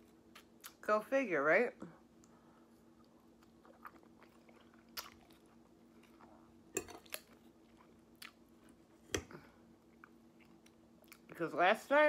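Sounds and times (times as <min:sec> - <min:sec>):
person chewing salad: 0:00.0 - 0:00.8, 0:02.7 - 0:11.3
faint steady hum: 0:00.0 - 0:12.0.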